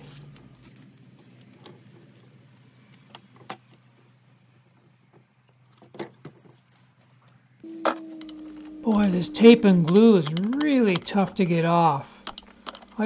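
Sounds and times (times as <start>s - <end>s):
foil tape crinkling and peeling: 0.0s - 3.8s
low steady hum: 7.6s - 13.0s.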